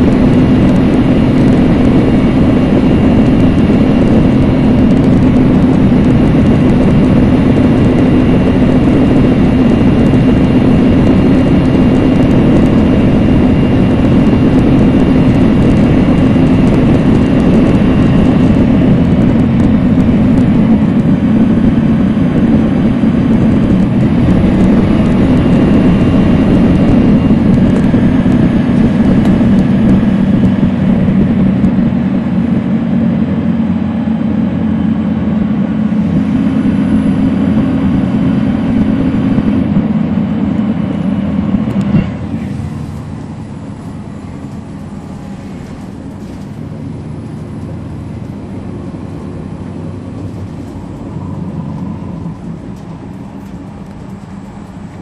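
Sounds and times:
bus diesel engine drone: 0:00.0 - 0:55.0.

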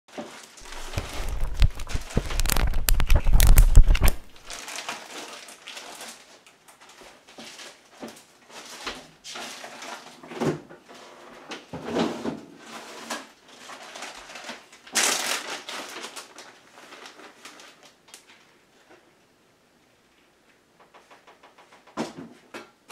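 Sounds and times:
plastic packaging rustling: 0:00.1 - 0:10.2, 0:12.9 - 0:18.5
knocks of handled packages: 0:00.6 - 0:04.6.

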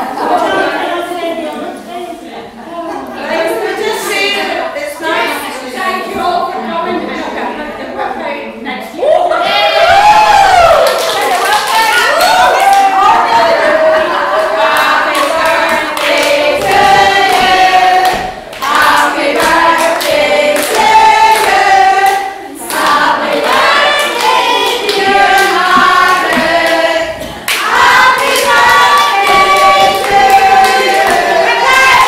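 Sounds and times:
hands clapping: 0:10.8 - 0:12.8, 0:14.8 - 0:32.0
women singing together: 0:11.4 - 0:32.0.

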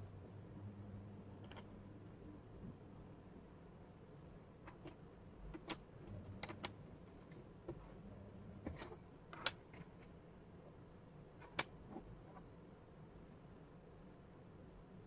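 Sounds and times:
wooden puzzle pieces clicking: 0:01.4 - 0:01.7, 0:04.7 - 0:07.4.

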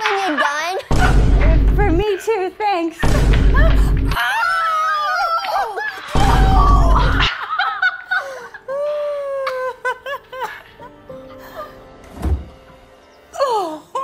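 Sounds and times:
woman and boy shouting and laughing: 0:00.0 - 0:01.1, 0:03.5 - 0:07.3
television voices and laughter: 0:00.0 - 0:01.3, 0:02.0 - 0:11.8
deep low sound: 0:01.0 - 0:02.0.

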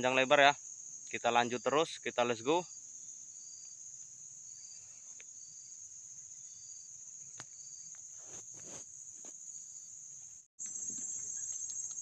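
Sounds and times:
insect chorus drone: 0:00.0 - 0:12.0
rustling: 0:08.0 - 0:09.4.

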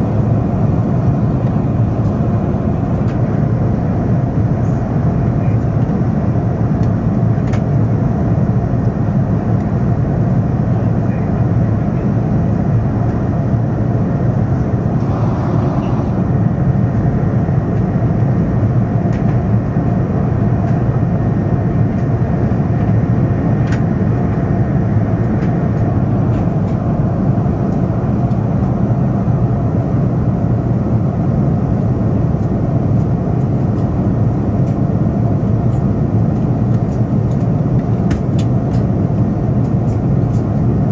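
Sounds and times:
jet engines rumbling in cabin: 0:00.0 - 0:40.9
airflow past fuselage: 0:14.8 - 0:17.0.

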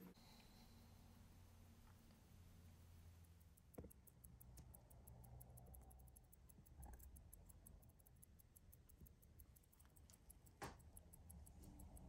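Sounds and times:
soft small clicks: 0:03.1 - 0:12.0.

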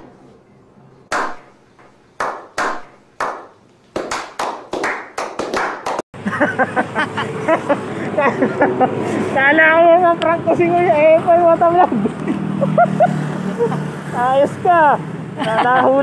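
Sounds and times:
hand clapping: 0:02.2 - 0:06.0.

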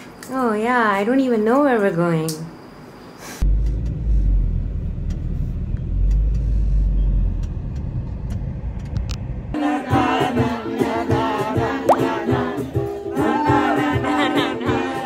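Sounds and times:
car rumble: 0:03.4 - 0:09.6.

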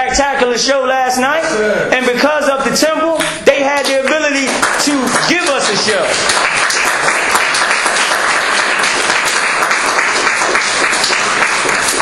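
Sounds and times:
audience applauding: 0:03.8 - 0:12.0.

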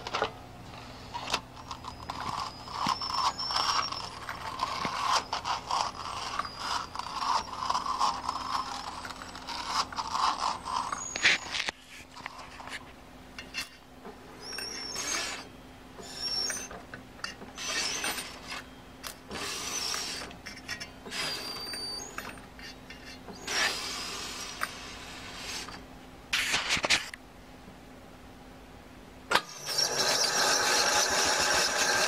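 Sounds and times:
tape squeaking: 0:00.9 - 0:13.8, 0:14.4 - 0:25.8, 0:29.3 - 0:32.0
tape scraping swishes on reel: 0:01.1 - 0:12.8, 0:14.4 - 0:16.7, 0:17.6 - 0:18.6, 0:19.3 - 0:25.8.

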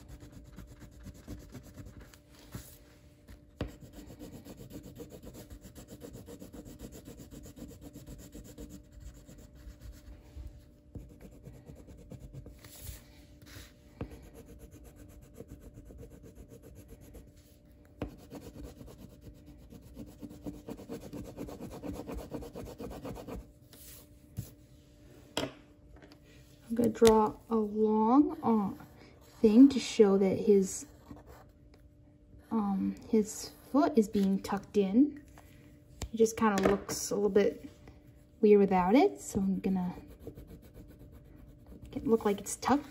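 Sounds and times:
coloring tool scribbling on paper: 0:00.0 - 0:02.1, 0:03.6 - 0:09.9, 0:14.2 - 0:17.2, 0:18.1 - 0:23.4, 0:40.0 - 0:42.3.

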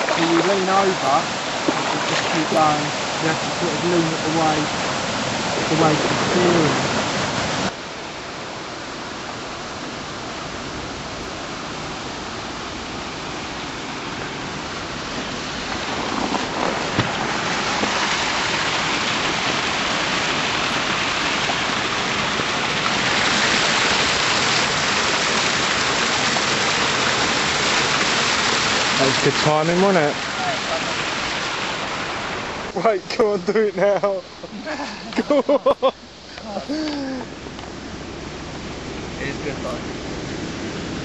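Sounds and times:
water rushing through lock gate: 0:00.0 - 0:41.0.

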